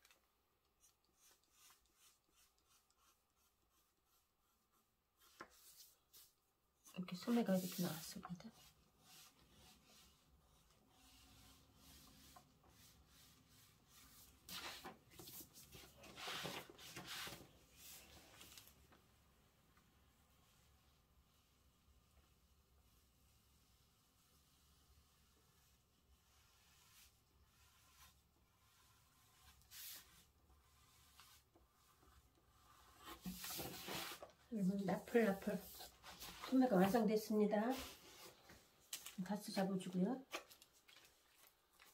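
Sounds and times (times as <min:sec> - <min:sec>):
pencil scratching on paper: 0:00.8 - 0:06.3, 0:07.2 - 0:17.4.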